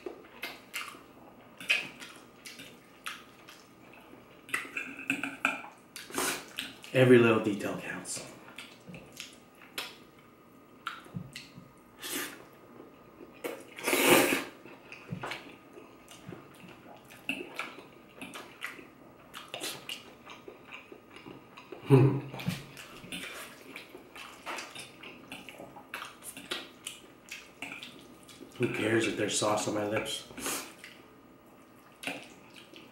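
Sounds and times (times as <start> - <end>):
wet chewing and lip smacking: 0.0 - 1.0, 1.6 - 6.9, 8.5 - 10.2, 10.8 - 11.7, 14.7 - 21.8, 22.4 - 28.6, 30.7 - 32.9
noodle slurp: 13.7 - 14.6.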